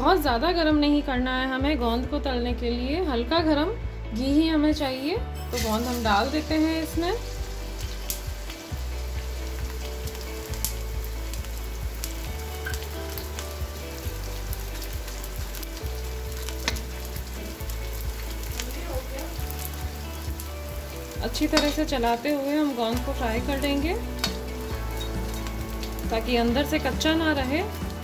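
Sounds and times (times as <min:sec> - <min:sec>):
gum sizzling in hot oil: 0:05.5 - 0:28.0
metal spoon clicking against pan: 0:21.5 - 0:21.9.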